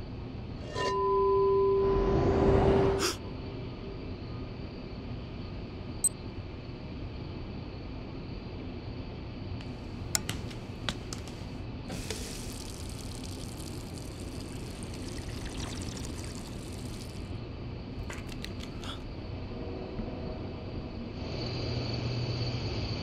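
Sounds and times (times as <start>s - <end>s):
steady low hum: 0.0s - 23.0s
tap water running into sink: 11.9s - 17.3s.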